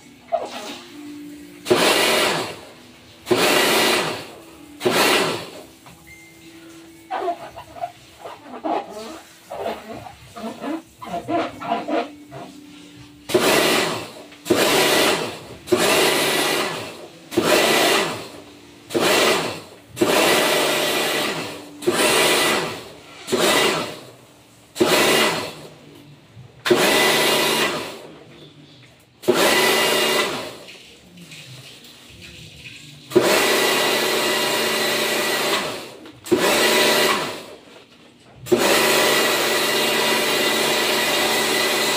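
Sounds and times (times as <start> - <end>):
pump motor running: 0.0 - 24.1, 24.7 - 25.7, 26.7 - 28.0, 29.2 - 37.6, 38.5 - 41.9
pressure washer spraying water: 0.0 - 25.5, 29.2 - 35.6, 36.3 - 37.2.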